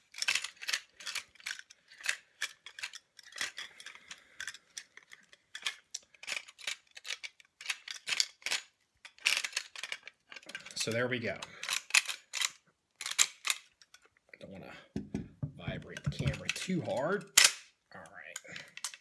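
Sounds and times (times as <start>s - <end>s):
metal clicks of rifle disassembly: 11.6s - 14.1s, 16.1s - 17.7s, 18.4s - 19.0s.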